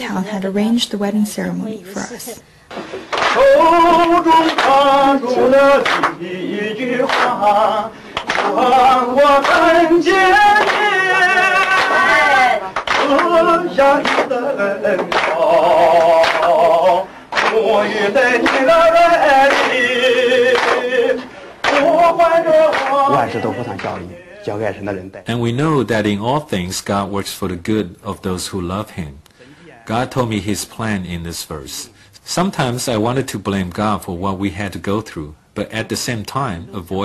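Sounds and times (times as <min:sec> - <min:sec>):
man singing a hymn: 0:03.3 - 0:27.2.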